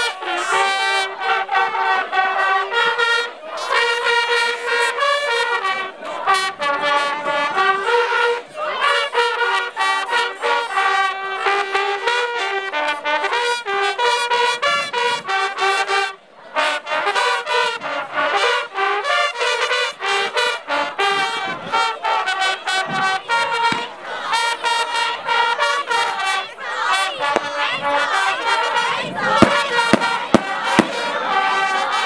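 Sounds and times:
trumpets playing short loud notes: 0.0s - 32.0s.

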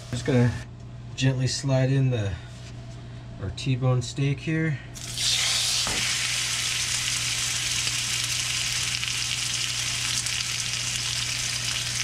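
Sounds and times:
steak sizzling in a frying pan: 5.0s - 12.0s.

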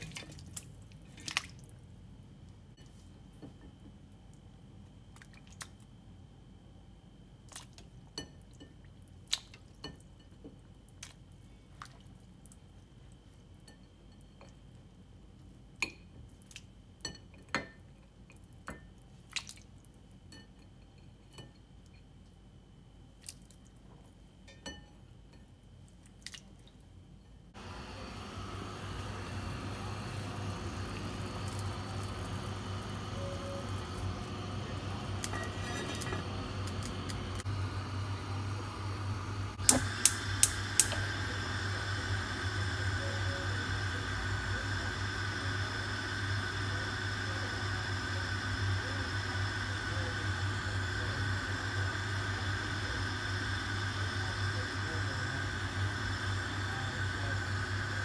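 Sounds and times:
water dripping and plops: 19.3s - 19.7s
low hum: 27.5s - 58.0s
pot boiling: 27.5s - 58.0s.

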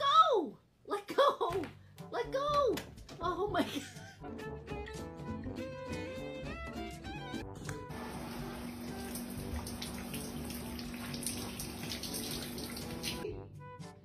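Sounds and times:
music: 1.5s - 10.9s, 12.5s - 14.0s
running water pouring: 7.9s - 13.2s.

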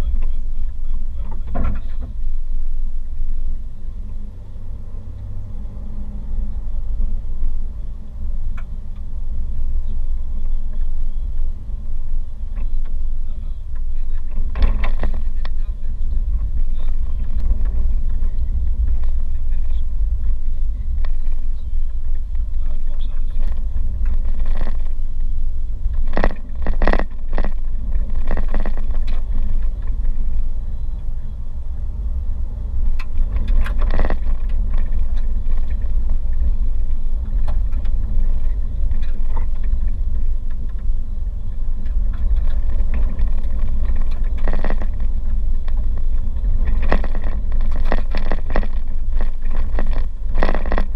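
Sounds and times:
car knocks and rattles: 0.0s - 2.4s, 13.7s - 30.8s, 32.6s - 50.9s
car tyres rumbling on gravel: 0.0s - 50.9s.

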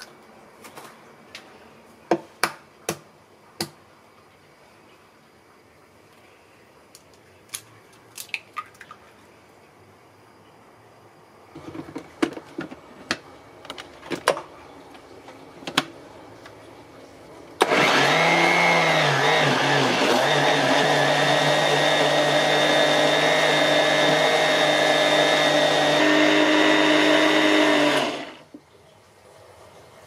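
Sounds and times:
blender running: 17.6s - 28.5s.

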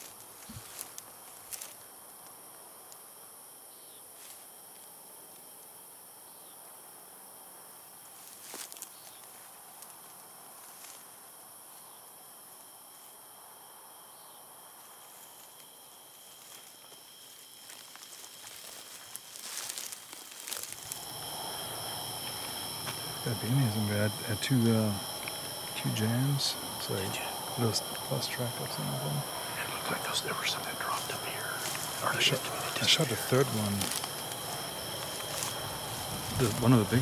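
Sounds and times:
faint footsteps and rustles: 0.0s - 2.4s, 8.1s - 12.0s, 14.8s - 21.2s, 29.8s - 37.0s
crickets trilling: 0.0s - 37.0s.

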